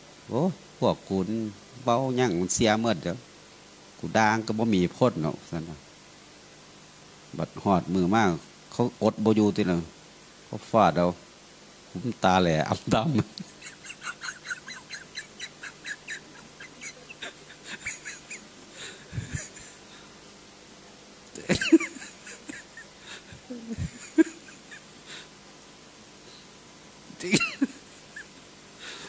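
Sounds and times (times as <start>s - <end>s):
man laughing: 12.9s - 20.1s, 21.3s - 25.3s, 27.2s - 29.0s.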